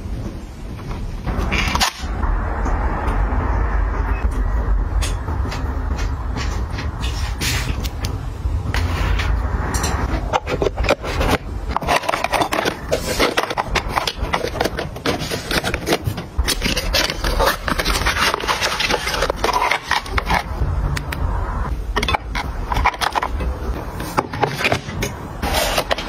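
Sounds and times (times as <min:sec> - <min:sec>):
packaging scraping and clicking: 0:10.2 - 0:20.5, 0:22.0 - 0:26.0.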